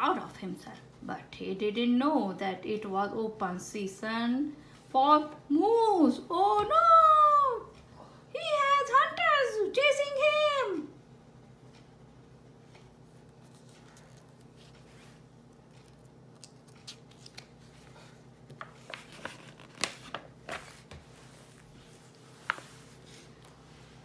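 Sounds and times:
faint steady hum: 0.0 - 24.0
book pages turning: 13.1 - 23.6.

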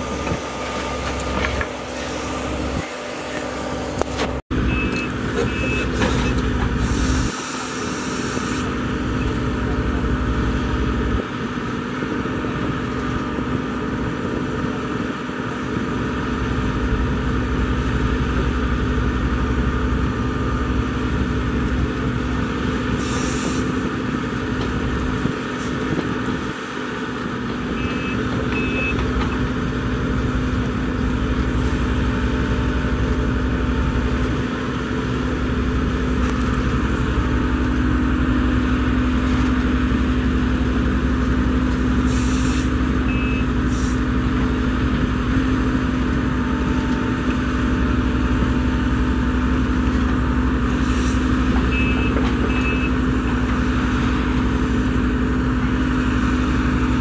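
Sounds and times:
excavator diesel engine: 0.0 - 57.0
short high beeps: 43.1 - 43.5, 51.7 - 52.9.

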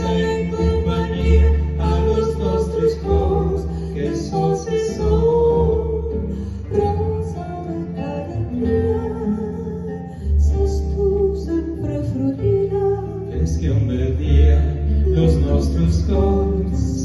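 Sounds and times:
woman singing: 0.0 - 13.6
double bass: 0.0 - 17.0
nylon-string guitar: 0.0 - 17.0
plucked string instrument: 0.0 - 17.0.

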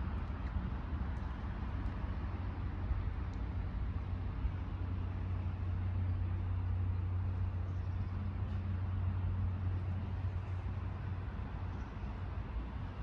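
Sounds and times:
low rumble with hiss: 0.0 - 13.0.

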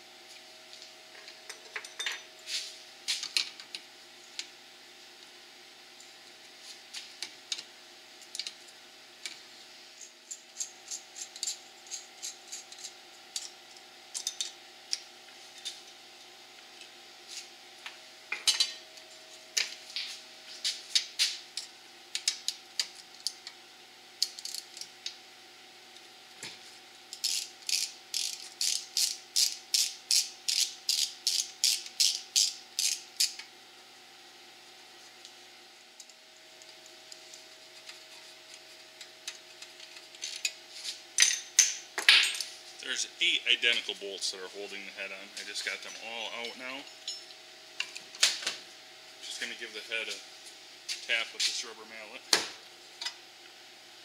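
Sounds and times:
ratchet wrench clicking: 27.2 - 33.4.

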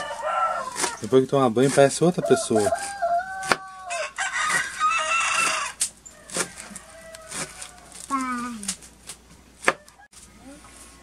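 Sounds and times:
rooster crowing: 0.0 - 1.0, 2.2 - 8.0.

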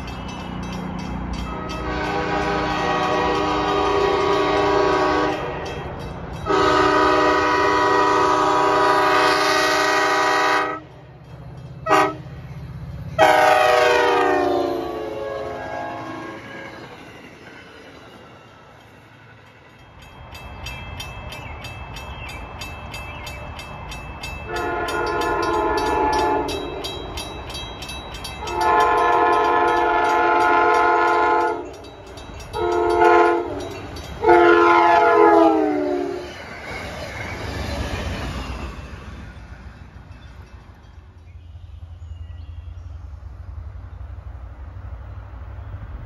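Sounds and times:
railroad crossing bell ringing: 0.0 - 43.0
train rumble: 0.0 - 46.0
locomotive air horn: 1.5 - 5.7, 6.4 - 10.9, 11.8 - 12.3, 13.2 - 16.9, 24.5 - 26.7, 28.4 - 31.8, 32.6 - 36.3.

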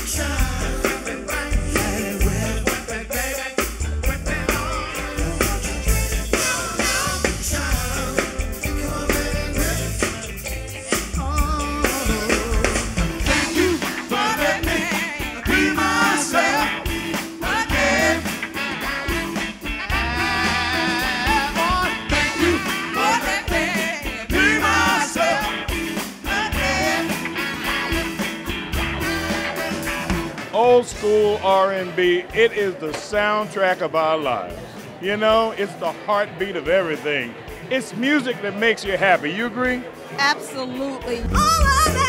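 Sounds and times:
live funk band playing: 0.0 - 42.0
person singing lead: 19.9 - 25.6.

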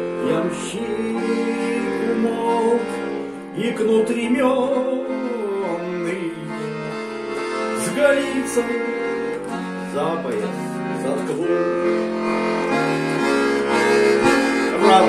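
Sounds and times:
man singing: 0.0 - 7.0, 7.7 - 9.1, 9.9 - 12.2, 14.7 - 15.0
accordion chords: 0.0 - 15.0.

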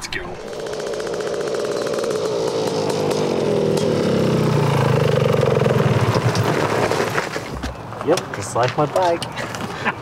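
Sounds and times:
two-stroke engine running: 0.4 - 6.5.

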